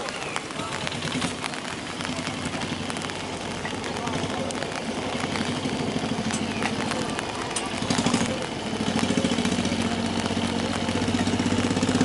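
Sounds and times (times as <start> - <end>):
small engine idling: 3.8 - 12.0.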